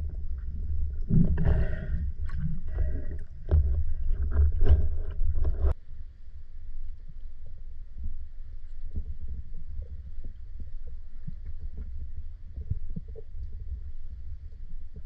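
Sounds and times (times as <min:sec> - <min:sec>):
underwater knocks and clicks: 0:00.0 - 0:05.8, 0:07.1 - 0:15.0
muffled underwater rumble: 0:00.0 - 0:15.0.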